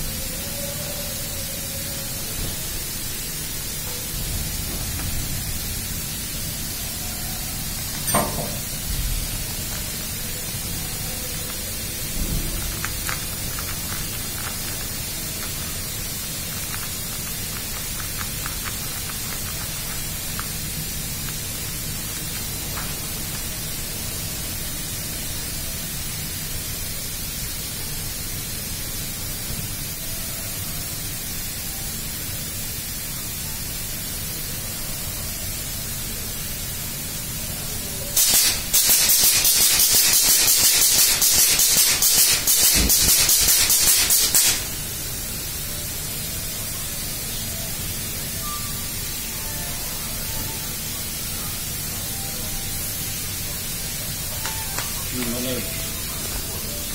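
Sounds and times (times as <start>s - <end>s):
metal hose fittings clicking: 7.9s - 8.8s.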